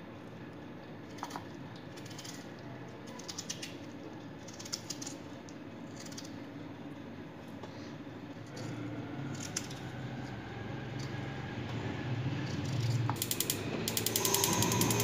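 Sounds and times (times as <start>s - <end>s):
gas stove igniter clicking: 13.2s - 15.0s.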